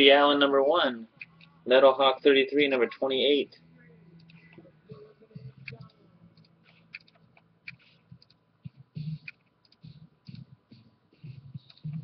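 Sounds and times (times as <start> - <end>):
computer mouse clicking: 5.6 - 8.4, 9.2 - 10.4.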